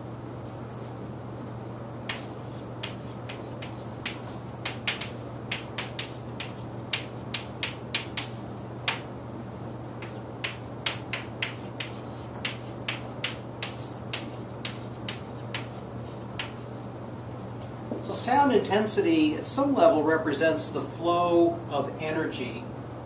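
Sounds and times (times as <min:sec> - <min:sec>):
steady low hum: 0:00.0 - 0:23.0
chalk tapping on a blackboard: 0:02.1 - 0:09.1, 0:10.0 - 0:16.8.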